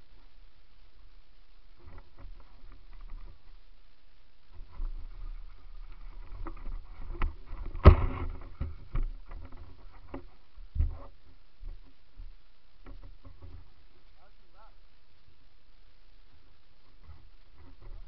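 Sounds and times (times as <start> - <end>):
bike rattling over rocks: 4.5 - 13.8.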